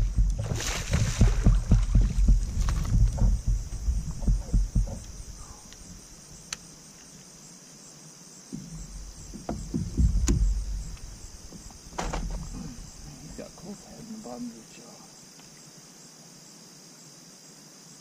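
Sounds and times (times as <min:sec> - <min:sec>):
kayak thumps and water noise: 0:00.0 - 0:06.7, 0:08.5 - 0:13.8
night insects chorus: 0:00.0 - 0:18.0.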